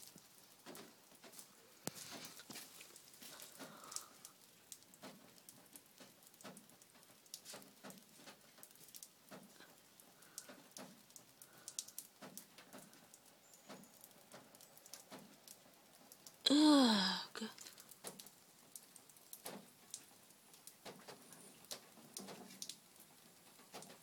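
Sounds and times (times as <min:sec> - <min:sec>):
faint rain dripping: 0:00.0 - 0:24.0.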